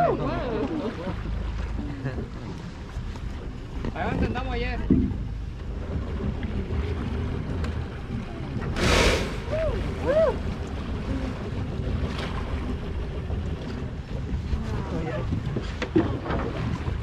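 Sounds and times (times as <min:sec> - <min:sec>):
sea noise: 0:00.0 - 0:17.0
wind: 0:00.0 - 0:17.0
whale blowing breath: 0:08.7 - 0:10.4.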